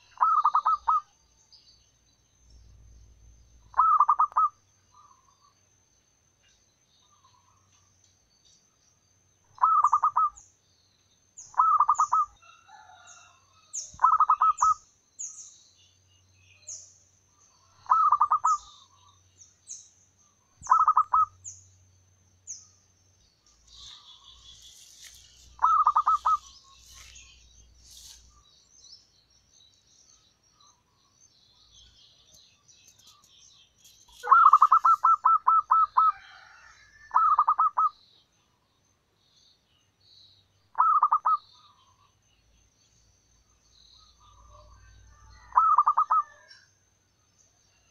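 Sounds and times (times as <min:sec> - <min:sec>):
small bird high chirps: 0:00.0 - 0:01.7, 0:03.6 - 0:05.5, 0:09.4 - 0:10.6, 0:11.4 - 0:21.8, 0:22.4 - 0:38.3, 0:39.3 - 0:42.2, 0:43.6 - 0:46.7
birds twittering faintly: 0:00.0 - 0:47.9
dove cooing: 0:00.1 - 0:01.1, 0:03.7 - 0:04.5, 0:09.6 - 0:10.4, 0:17.8 - 0:18.7, 0:20.6 - 0:21.4, 0:25.6 - 0:26.6, 0:34.2 - 0:37.9, 0:40.8 - 0:41.4.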